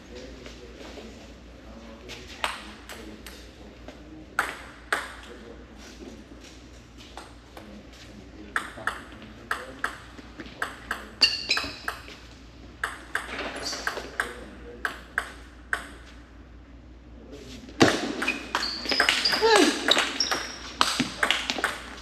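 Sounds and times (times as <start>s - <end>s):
high squeak: 11.2s - 12.0s, 18.2s - 20.7s.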